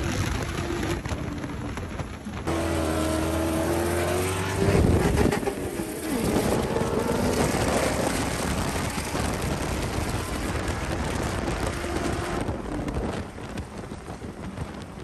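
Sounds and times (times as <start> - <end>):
engine running: 0.0 - 15.0
wind rushing over microphone: 0.0 - 15.0.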